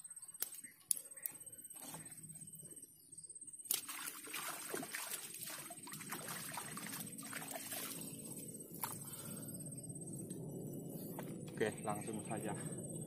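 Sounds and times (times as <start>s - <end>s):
water splashing and sloshing: 3.6s - 9.2s.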